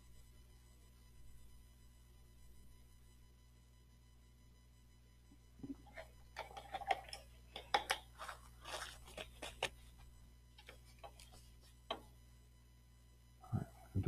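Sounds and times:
paper rustling on desk: 7.8s - 11.9s.

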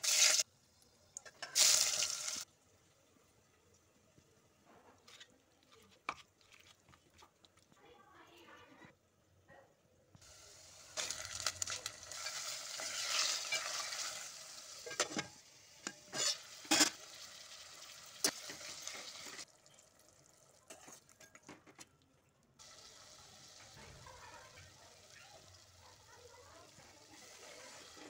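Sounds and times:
chicken and onions sizzling: 0.0s - 5.2s, 10.2s - 21.3s, 22.6s - 28.0s.

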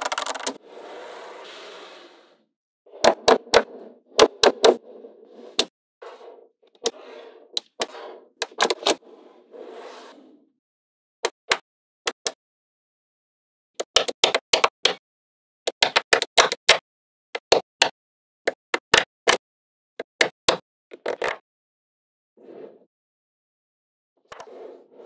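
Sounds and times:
magnetic balls clicking: 0.0s - 0.6s
rustling of balls shifting: 0.0s - 9.0s.

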